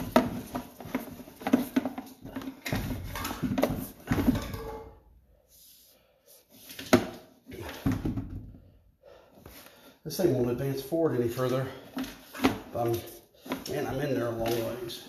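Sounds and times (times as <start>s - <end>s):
cable rattling and knocking in drain: 0.0s - 5.0s.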